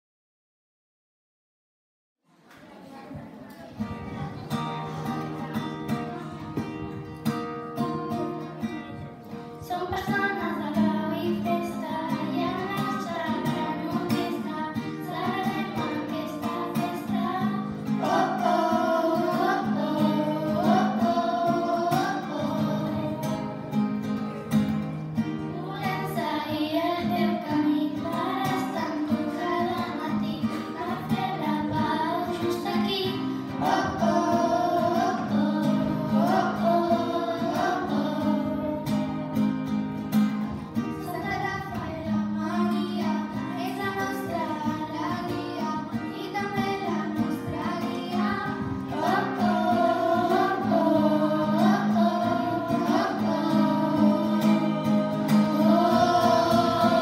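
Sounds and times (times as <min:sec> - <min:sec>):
girls singing in unison: 0:09.6 - 0:24.5, 0:25.4 - 0:39.8, 0:40.8 - 0:57.0.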